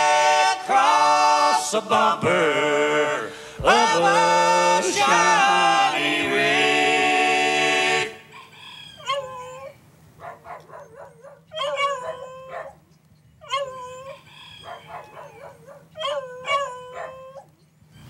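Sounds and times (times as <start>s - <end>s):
dog barking and howling: 9.0s - 12.8s, 13.4s - 17.6s.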